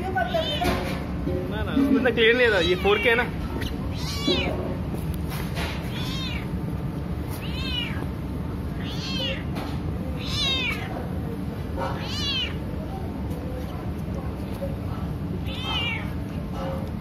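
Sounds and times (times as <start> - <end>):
cat meowing: 0.2 - 0.8, 2.5 - 4.8, 5.8 - 6.6, 7.3 - 8.1, 8.7 - 11.1, 11.8 - 12.7, 15.4 - 16.3.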